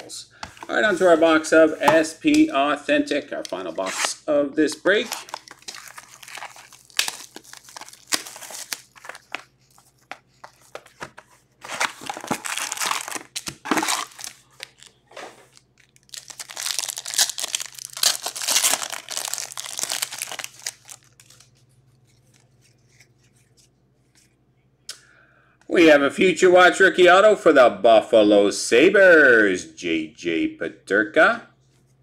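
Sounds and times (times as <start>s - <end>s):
cards being handled: 4.7s - 24.4s
foil packs ripping and crinkling: 5.0s - 9.5s, 11.6s - 14.9s, 15.5s - 21.5s.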